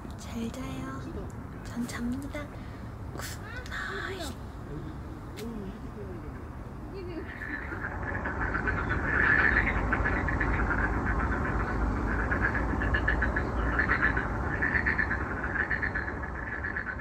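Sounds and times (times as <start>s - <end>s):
low rumble: 4.5s - 17.0s
frogs calling: 6.2s - 17.0s.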